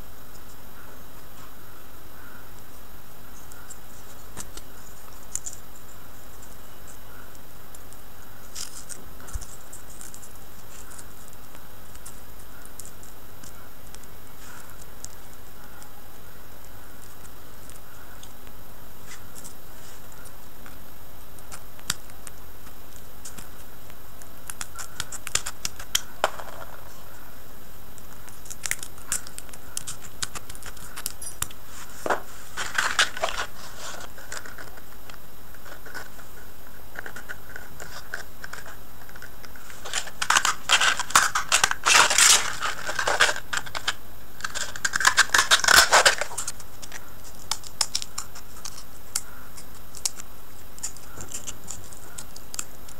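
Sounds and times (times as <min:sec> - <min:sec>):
steady hiss: 0:00.0 - 0:52.9
paper rustling and crinkling: 0:28.1 - 0:52.9.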